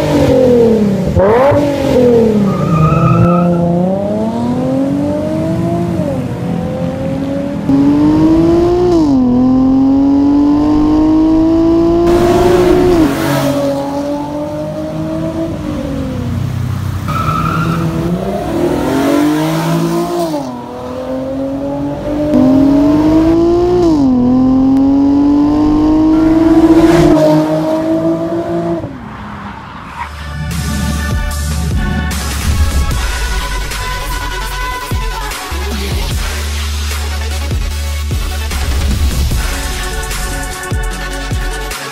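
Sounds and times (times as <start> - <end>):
car engine accelerating hard: 0.0 - 29.0.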